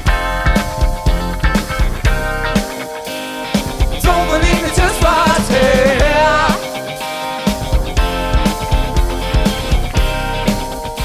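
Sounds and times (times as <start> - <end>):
pop-funk band playing: 0.0 - 11.0
man and woman singing together: 4.0 - 6.6.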